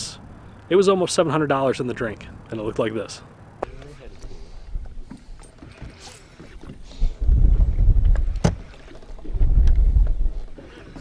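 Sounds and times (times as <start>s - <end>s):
wind buffeting microphone: 6.7s - 10.6s.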